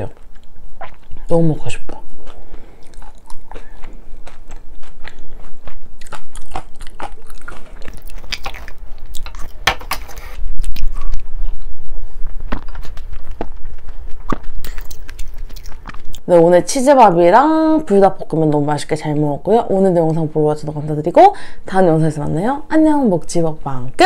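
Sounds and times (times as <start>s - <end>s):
close chewing: 0.0s - 16.3s
sharp mouth clicks: 12.5s - 16.2s.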